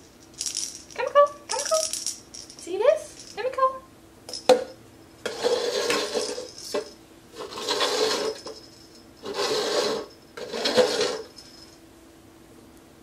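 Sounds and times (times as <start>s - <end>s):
plastic cups scraping on tile floor: 5.2s - 8.6s, 9.2s - 11.3s.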